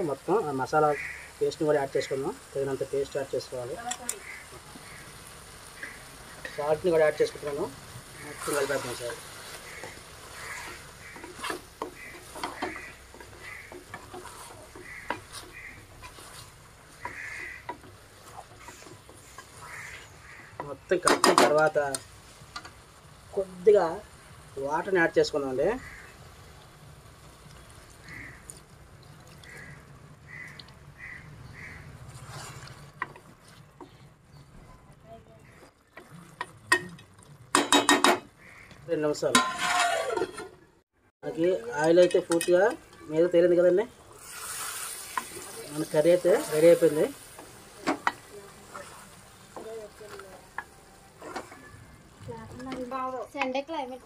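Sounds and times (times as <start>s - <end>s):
masala sizzling: 0.0s - 54.0s
spoon scraping metal pot: 8.3s - 20.1s, 39.3s - 40.5s
metal spoon clinking on pot: 41.8s - 43.0s.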